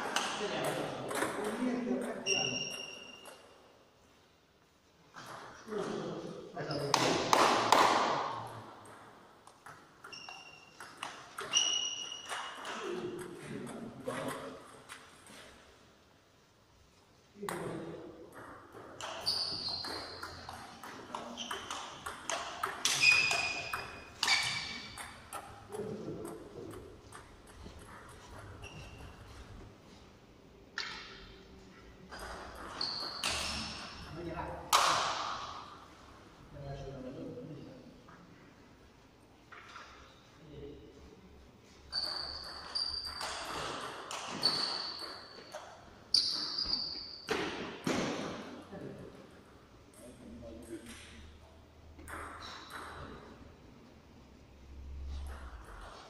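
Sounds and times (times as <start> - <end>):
table tennis balls clicking: 17.6 - 29.2.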